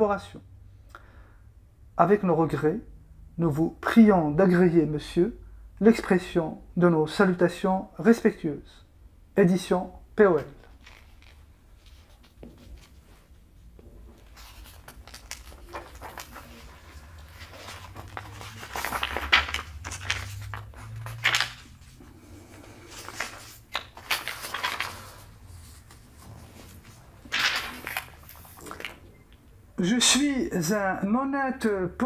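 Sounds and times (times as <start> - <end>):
paper sheets rustling: 10.4 - 29.4.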